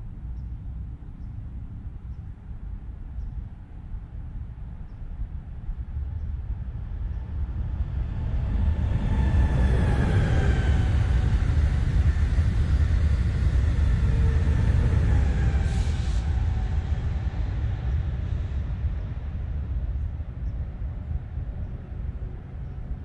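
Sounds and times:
train passing at speed: 5.8 - 23.0.

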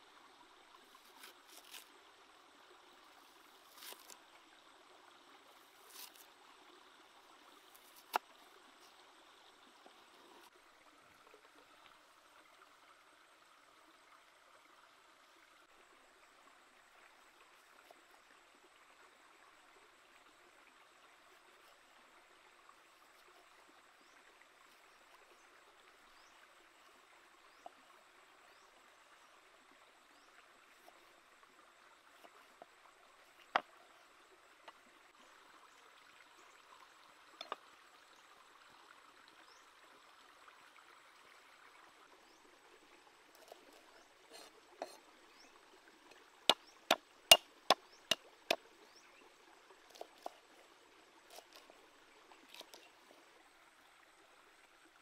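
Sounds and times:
faint running water rush: 0.0 - 55.0
cleaver chopping on wooden block: 46.5 - 48.2.

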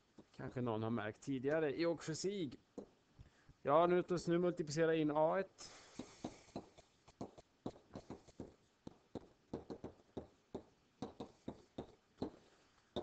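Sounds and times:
stylus tapping on writing surface: 6.6 - 12.4.

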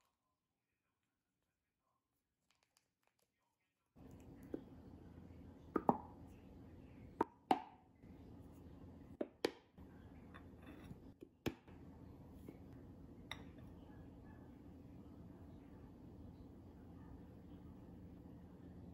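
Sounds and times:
steady low hum: 4.0 - 7.2, 8.0 - 9.2, 9.8 - 18.9.

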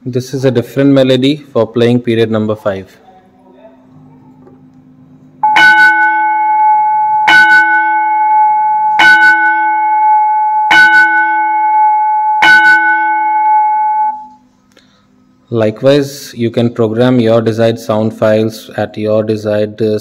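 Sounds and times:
loud struck bell chimes: 5.4 - 14.4.

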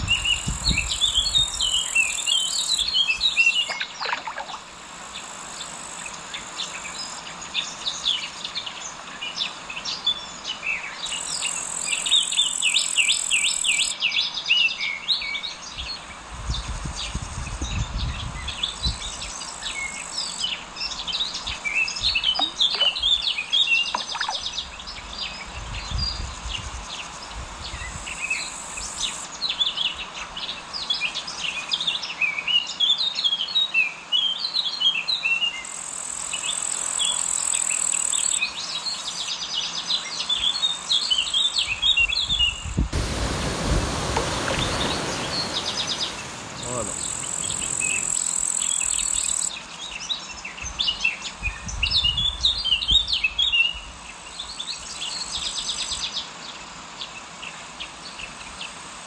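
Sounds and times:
small birds chirping and singing: 38.4 - 56.4.

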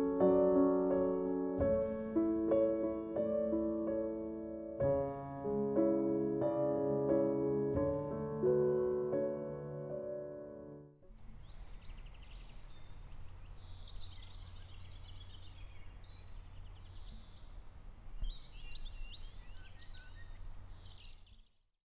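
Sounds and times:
birds chirping and trilling: 11.1 - 21.7.

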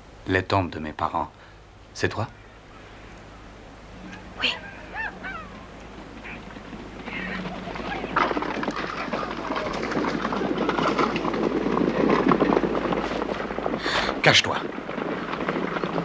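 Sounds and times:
hoofbeats of galloping horses: 4.0 - 16.0.

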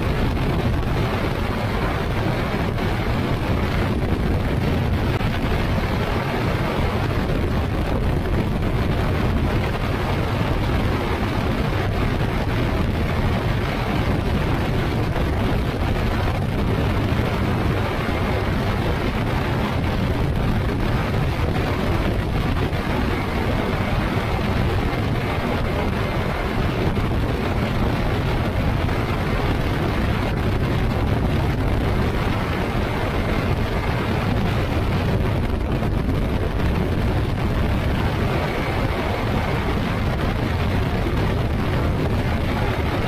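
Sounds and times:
aircraft engine and propeller: 0.0 - 43.0
wind rush on microphone: 0.0 - 43.0.

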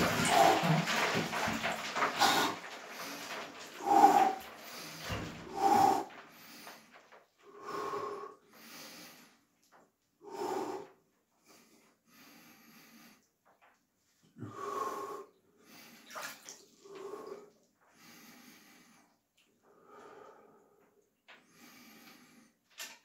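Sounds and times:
man breathing heavily: 0.0 - 9.5, 10.2 - 13.3, 14.4 - 16.2, 16.8 - 22.6.

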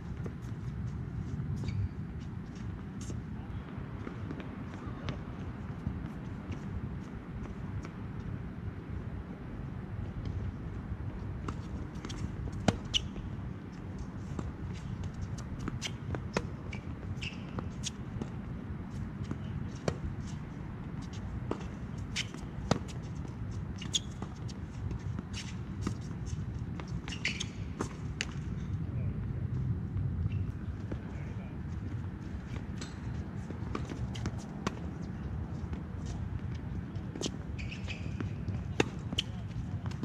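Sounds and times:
shoes scuffing on court: 11.1 - 28.7, 30.3 - 40.0.

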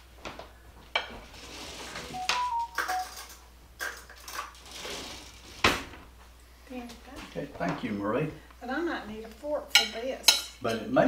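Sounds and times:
brief ringing tones: 2.2 - 3.2
metal spoons clinking: 2.2 - 3.4.

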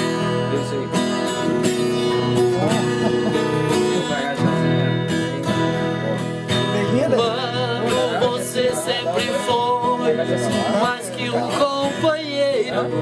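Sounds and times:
acoustic guitars strumming chords: 0.0 - 13.0.

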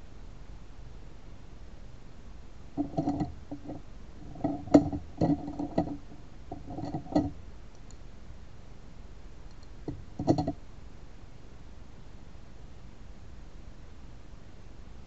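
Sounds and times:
small objects knocking on a desk: 2.8 - 7.4, 9.9 - 10.6.

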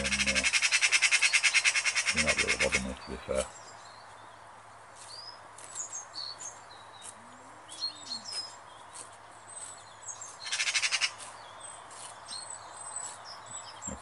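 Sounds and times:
magpie rattling chatter: 0.0 - 3.5, 10.4 - 11.2
small birds chirping: 0.0 - 14.0.

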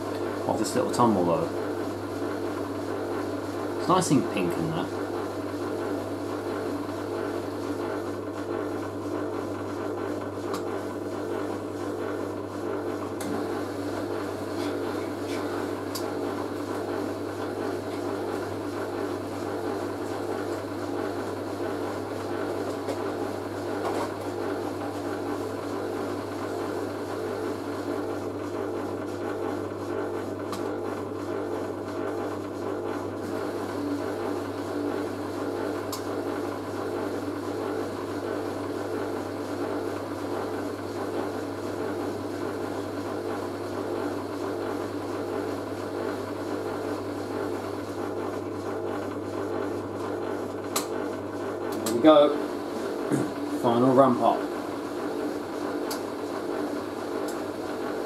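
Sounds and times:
washing machine tumbling laundry: 0.0 - 58.0.

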